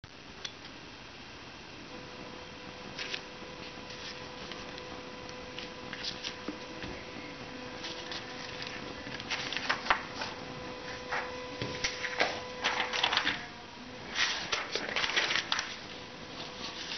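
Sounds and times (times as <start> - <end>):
paper rustling: 2.9 - 4.9, 5.6 - 13.5, 14.1 - 16.9.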